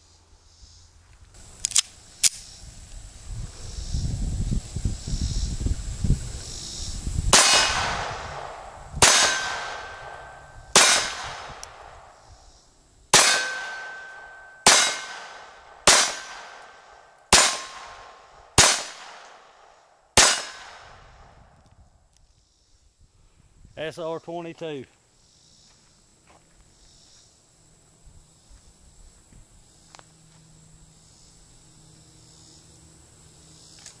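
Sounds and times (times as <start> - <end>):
pistol shots ringing: 7.3 - 12.1, 13.1 - 19.6, 20.2 - 20.9.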